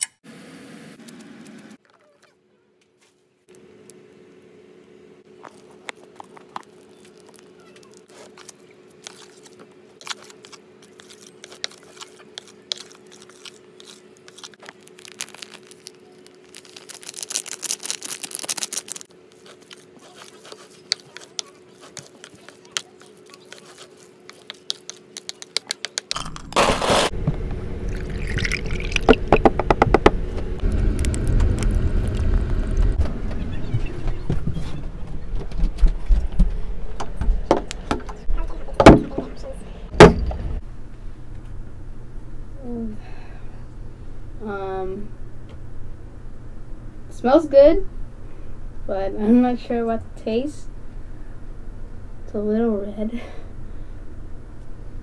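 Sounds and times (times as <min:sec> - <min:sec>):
steady low hum: 0:02.6 - 0:55.0
plastic packets crinkling: 0:05.4 - 0:27.1
loud rumbling with rapid clicking: 0:29.1 - 0:34.4.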